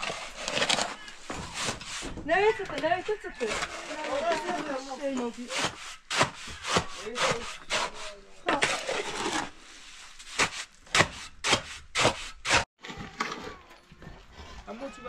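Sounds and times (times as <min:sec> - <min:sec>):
saw cutting: 0:00.0 - 0:09.6, 0:10.3 - 0:12.7.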